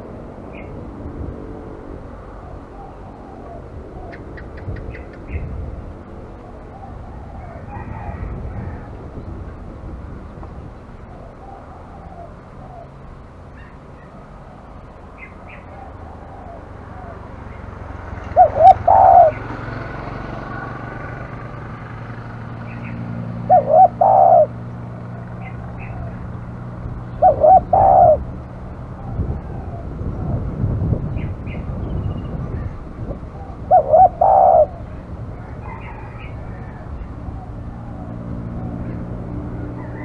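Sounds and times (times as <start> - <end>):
small birds chirping: 0.5 - 0.8, 2.4 - 5.6, 10.3 - 19.7, 22.5 - 28.2, 29.0 - 39.1
dove cooing: 2.2 - 5.4, 6.3 - 9.0, 11.0 - 19.7, 22.7 - 30.4, 33.0 - 40.0.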